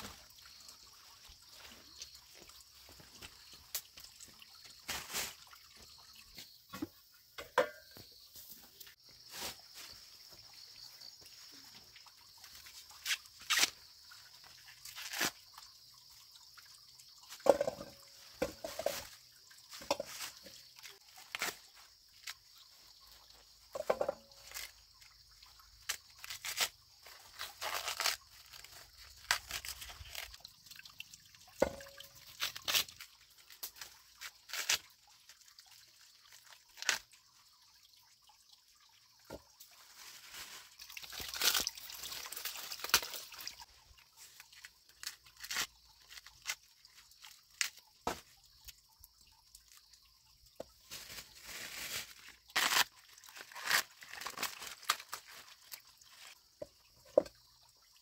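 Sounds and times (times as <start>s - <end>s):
corn husks tearing and rustling: 12.9s - 13.8s, 14.7s - 15.4s, 17.5s - 22.4s, 23.2s - 30.5s, 31.8s - 35.4s, 36.3s - 37.1s, 39.9s - 43.6s, 44.3s - 48.2s, 50.8s - 56.4s.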